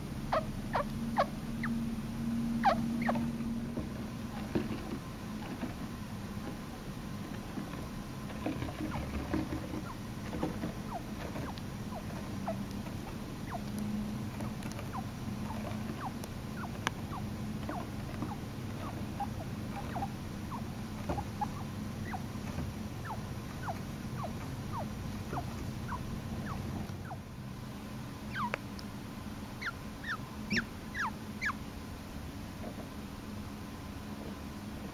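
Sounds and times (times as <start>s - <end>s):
chinchilla peeping and squeaking: 0.3s - 1.9s, 2.5s - 3.4s, 8.3s - 27.2s, 28.3s - 28.8s, 29.6s - 31.6s.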